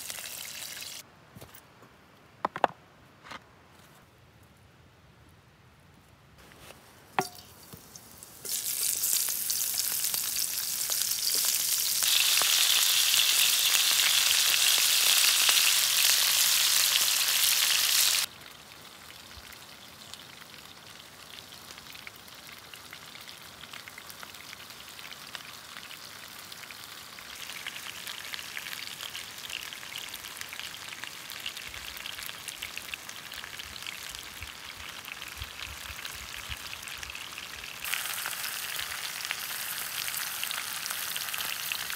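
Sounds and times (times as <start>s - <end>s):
crackling frying: 0.0s - 1.0s, 6.4s - 41.9s
vegetables sizzling in oil: 0.0s - 1.0s, 7.2s - 18.3s, 21.6s - 41.9s.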